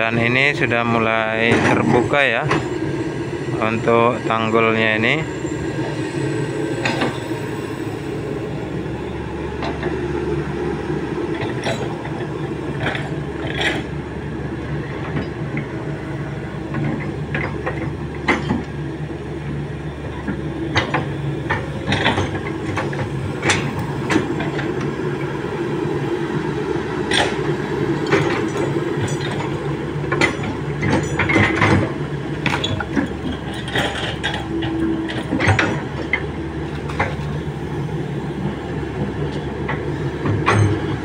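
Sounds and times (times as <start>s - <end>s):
excavator diesel engine running: 0.0s - 41.0s
metallic clanks and knocks: 11.3s - 13.9s, 16.7s - 18.7s, 20.2s - 24.8s, 27.1s - 37.3s, 39.3s - 41.0s.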